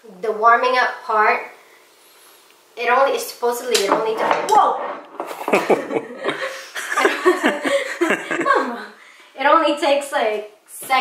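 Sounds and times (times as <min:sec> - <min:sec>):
woman laughing: 0:05.4 - 0:08.9.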